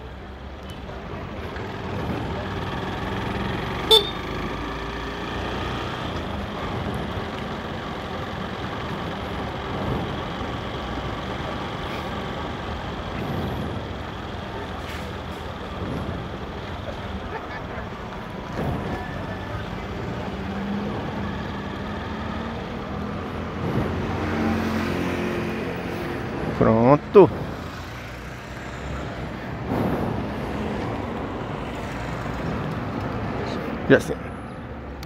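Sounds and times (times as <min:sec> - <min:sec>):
road and wind noise: 0:00.0 - 0:35.0
short horn toot: 0:03.9 - 0:04.2.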